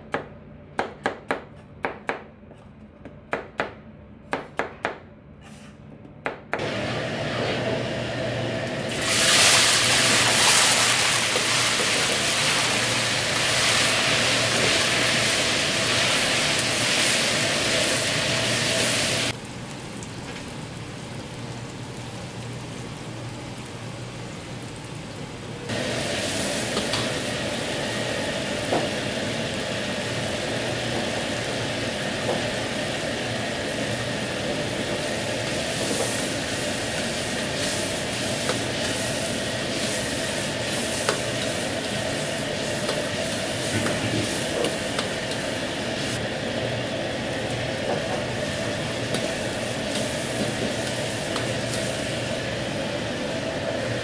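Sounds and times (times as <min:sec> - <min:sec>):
gas burner hum: 0:05.4 - 0:54.0
food hissing in a wok: 0:08.9 - 0:19.4, 0:25.7 - 0:46.2, 0:48.2 - 0:54.0.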